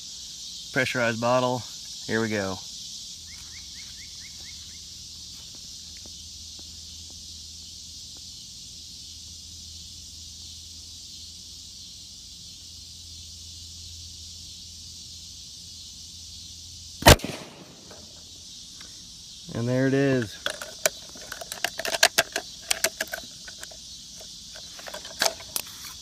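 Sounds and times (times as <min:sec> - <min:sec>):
insects chirring: 0:00.0 - 0:26.0
plastic bottle bursting with a bang: 0:17.0 - 0:17.9.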